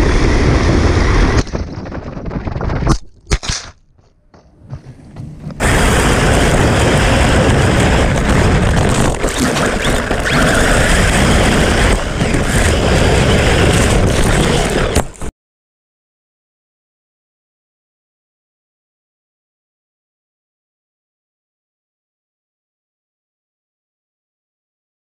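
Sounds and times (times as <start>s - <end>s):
rc truck motor and tyres on sand: 0.0s - 15.3s.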